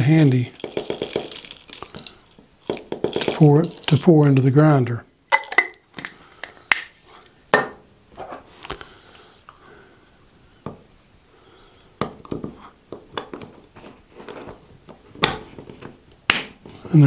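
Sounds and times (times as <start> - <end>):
coffee beans poured: 0.0 - 4.2
coffee grinder clicks and clinks: 0.5 - 4.1.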